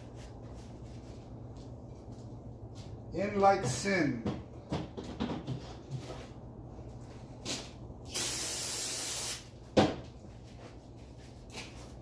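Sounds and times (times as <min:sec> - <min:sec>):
aerosol spray hiss: 0:08.1 - 0:09.5.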